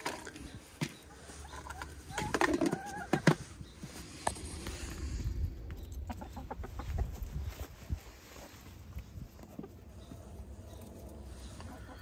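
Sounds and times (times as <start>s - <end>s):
hens pecking at feed: 0.0s - 4.7s
hens calling: 0.0s - 5.1s, 5.8s - 12.0s.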